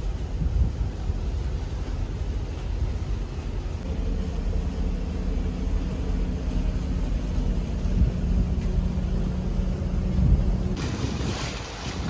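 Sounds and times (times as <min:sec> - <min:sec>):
boat engine rumbling: 0:00.0 - 0:12.0.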